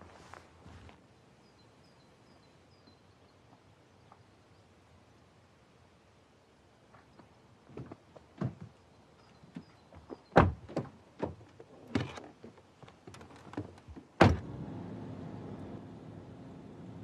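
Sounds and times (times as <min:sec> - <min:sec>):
car door shutting: 0:14.2 - 0:14.9
road noise inside car: 0:14.2 - 0:17.0.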